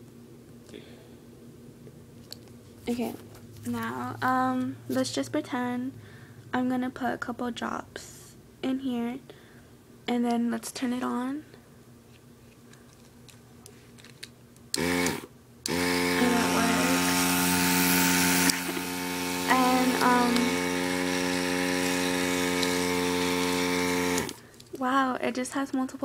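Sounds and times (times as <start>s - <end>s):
electric compressor motor humming: 14.8s - 24.5s.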